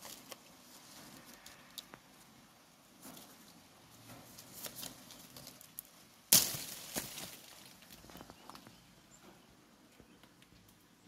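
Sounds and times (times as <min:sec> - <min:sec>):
leaves and twigs rustling: 0:00.0 - 0:10.9
branch snapping: 0:04.6 - 0:08.3.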